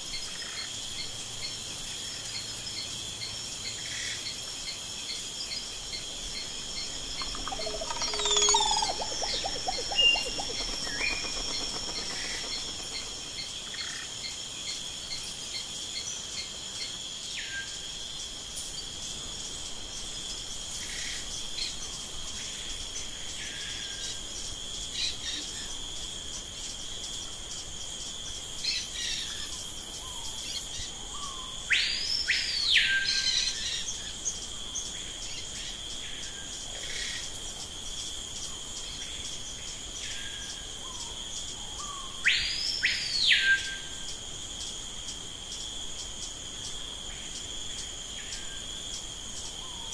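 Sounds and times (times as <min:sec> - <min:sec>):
high insect trill: 0:00.0 - 0:49.9
bird chirps: 0:05.6 - 0:13.5
bird whistles sweeping up: 0:06.3 - 0:13.1.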